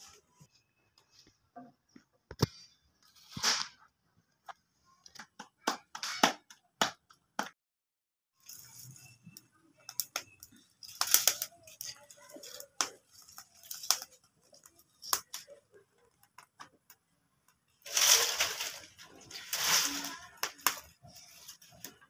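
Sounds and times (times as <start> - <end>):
burning twigs crackling: 8.4 - 22.0.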